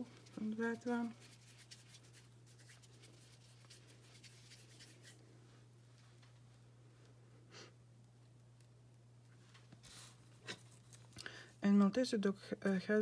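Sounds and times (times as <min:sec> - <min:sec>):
palm rubbing clay: 0:00.0 - 0:05.2
low electrical hum: 0:00.0 - 0:13.0.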